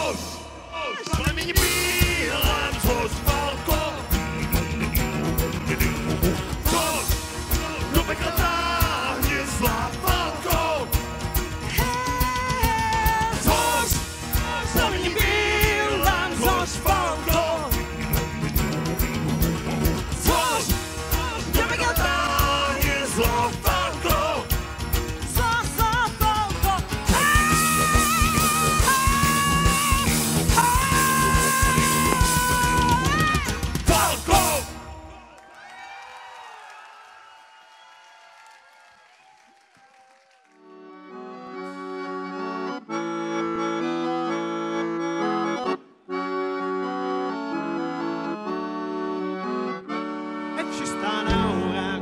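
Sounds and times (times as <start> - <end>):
live rock band playing: 0.0 - 35.1, 46.3 - 52.0
heavy drumming: 1.0 - 34.8.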